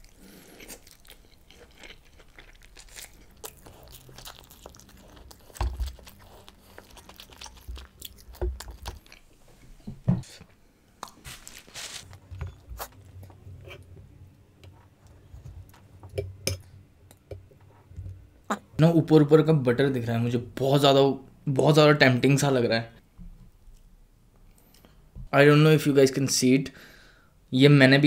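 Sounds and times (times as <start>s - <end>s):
chewing and biting: 0.0s - 9.4s
papery rustle: 11.2s - 12.2s.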